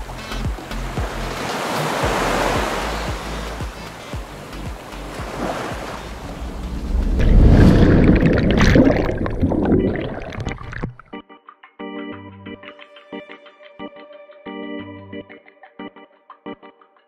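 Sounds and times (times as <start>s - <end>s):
wind on microphone: 5.2s - 10.6s
underwater splashing and bubbling: 5.2s - 11.1s.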